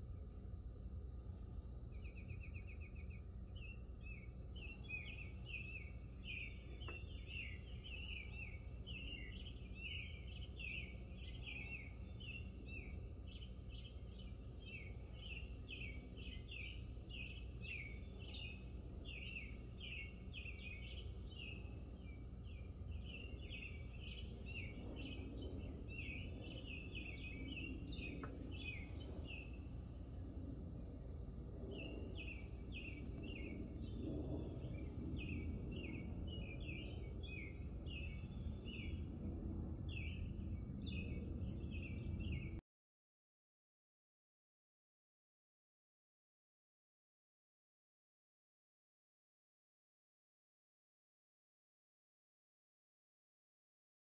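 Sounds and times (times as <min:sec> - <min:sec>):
low steady background hum: 0:00.0 - 0:42.6
small bird chirping rapidly: 0:02.0 - 0:39.1.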